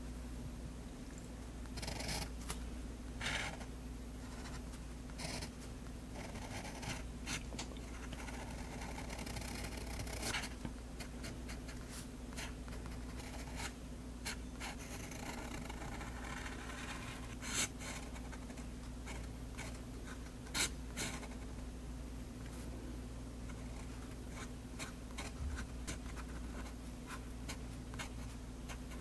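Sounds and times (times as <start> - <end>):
steady low hum: 0.0 - 29.0
pen nib scratching on paper: 8.1 - 10.5.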